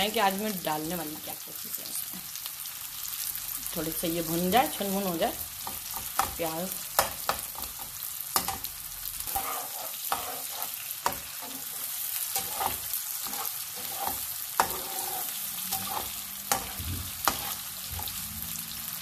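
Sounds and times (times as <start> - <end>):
onions sizzling in a pan: 0.0 - 19.0
metal spatula clacking on pan: 7.0 - 7.8, 8.4 - 8.7.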